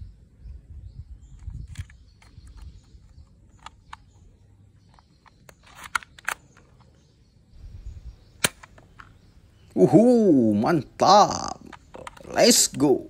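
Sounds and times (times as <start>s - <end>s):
toy pistol plastic clicks: 5.2s - 6.7s.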